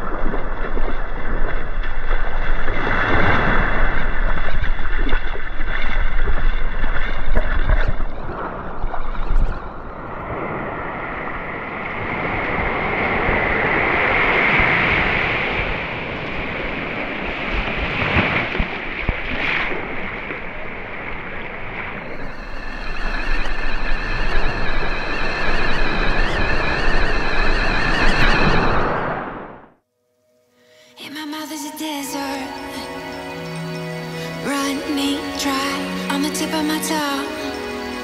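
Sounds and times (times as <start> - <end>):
surf waves washing up a beach: 0.0 - 29.7
steady high multi-pitch tone: 22.0 - 28.8, 30.2 - 38.0.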